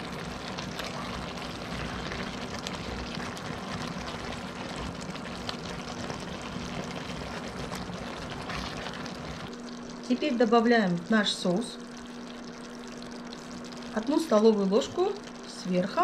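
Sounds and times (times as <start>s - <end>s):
sauce simmering in a pot: 0.0s - 16.0s.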